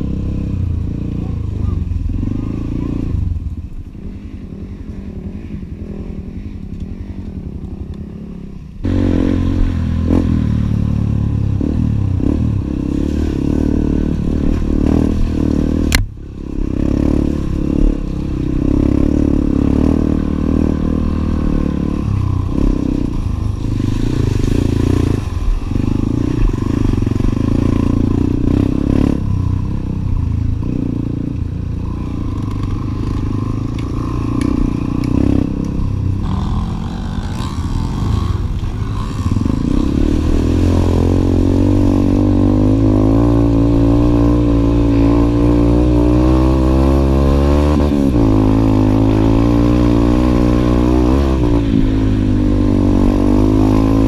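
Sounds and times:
dirt bike engine running: 0.0 - 54.0.

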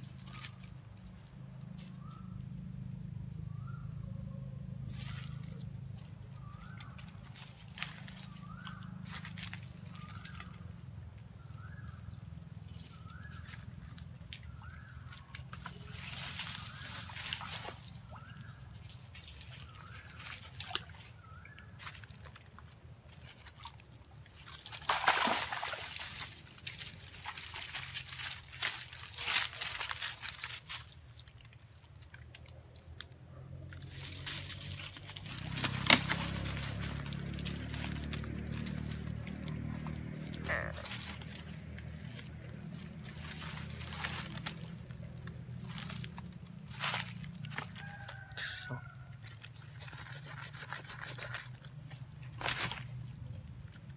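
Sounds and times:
dry leaves crunching and rustling: 4.9 - 10.8, 15.1 - 21.1, 24.4 - 31.2, 33.8 - 48.5, 52.2 - 53.2
light knocks and splashes: 12.9 - 32.4, 33.7 - 46.1
animal calling: 38.8 - 41.6.

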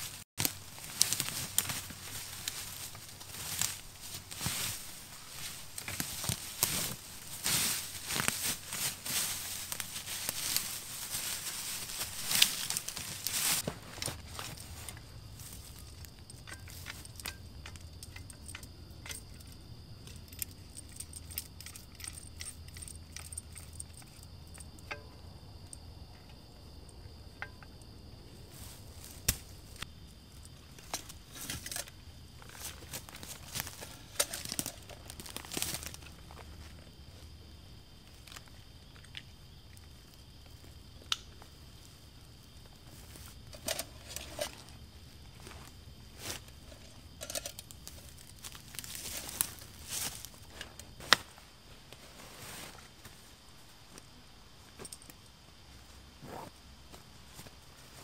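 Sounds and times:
rustling: 0.0 - 24.9, 30.5 - 37.3, 42.8 - 54.1
light metallic clinks: 14.3 - 27.9.

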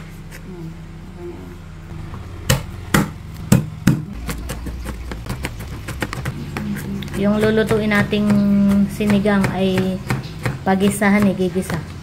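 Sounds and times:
steady low hum: 0.0 - 12.0
knife chopping on cutting board: 2.5 - 12.0.

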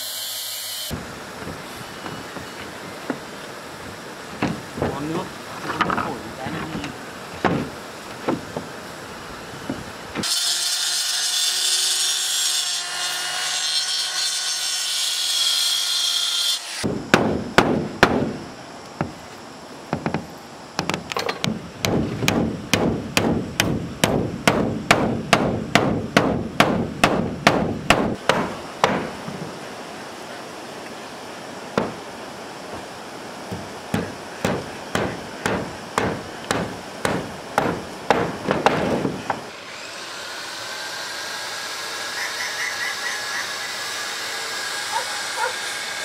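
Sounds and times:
knocks on wood: 5.6 - 8.7, 19.9 - 20.2, 20.8 - 29.2, 31.8 - 32.0, 33.5 - 39.4
power tool running: 33.5 - 46.0.

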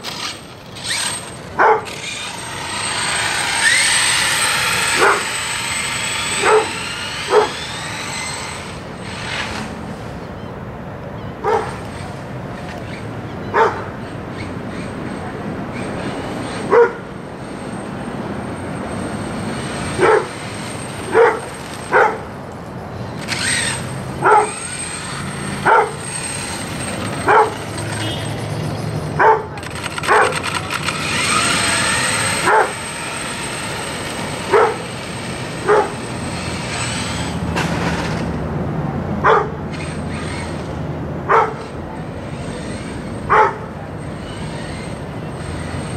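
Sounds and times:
electric motor whine: 0.0 - 9.8, 23.2 - 28.1, 29.6 - 38.2
dog barking: 1.6 - 1.9, 5.0 - 5.3, 6.4 - 7.6, 11.4 - 11.8, 13.5 - 13.9, 16.7 - 17.0, 20.0 - 20.3, 21.1 - 22.2, 24.2 - 24.6, 25.6 - 26.0, 27.2 - 27.6, 29.2 - 30.4, 32.4 - 32.8, 34.5 - 34.8, 35.6 - 36.0, 39.2 - 39.5, 41.3 - 41.6, 43.3 - 43.7.

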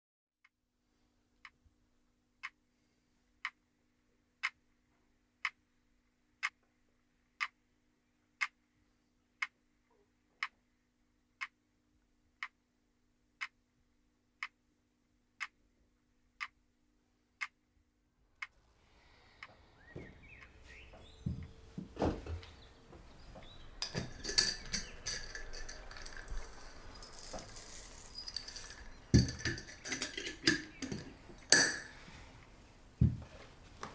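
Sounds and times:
clock ticking: 4.4 - 4.6, 5.4 - 5.6, 11.4 - 11.6, 12.4 - 12.6, 14.4 - 14.6, 16.4 - 16.6, 17.4 - 17.6
breakfast dishes clinking: 23.4 - 32.0.

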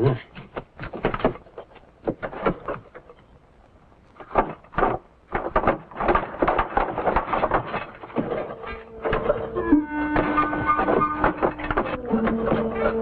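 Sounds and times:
things clattering in a refrigerator: 4.2 - 13.0.

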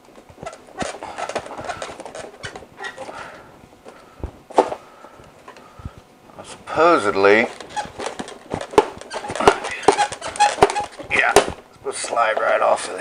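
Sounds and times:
light fixture cover scraping and knocking: 0.3 - 3.4, 7.3 - 11.6.

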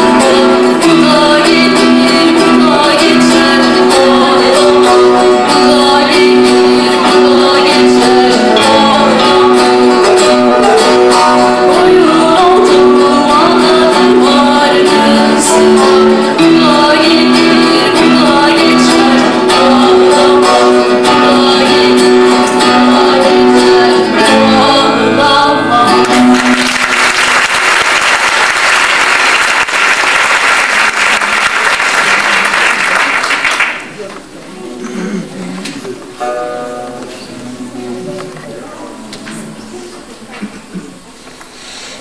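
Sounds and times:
audience applause: 26.1 - 34.0.

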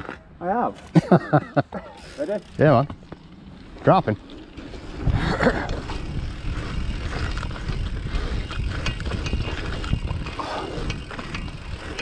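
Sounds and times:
bike clicks and rattles: 0.0 - 12.0
bike tyres rolling: 0.0 - 12.0
wind on microphone: 4.8 - 12.0.

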